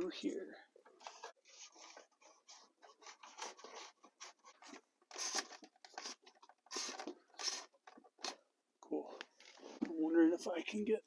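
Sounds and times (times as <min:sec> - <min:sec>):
wires scraping and rustling: 0:00.8 - 0:08.4, 0:09.2 - 0:10.1.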